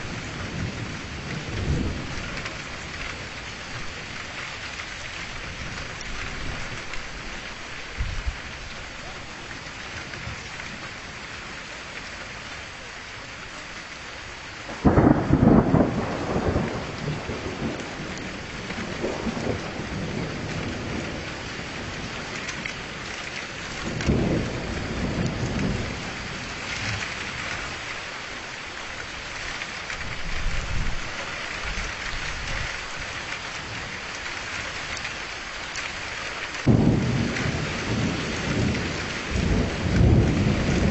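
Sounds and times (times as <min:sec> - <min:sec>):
rolling thunder: 0:00.0 - 0:04.4, 0:14.7 - 0:22.7, 0:23.7 - 0:27.8, 0:36.6 - 0:40.9
steady rain: 0:00.0 - 0:40.9.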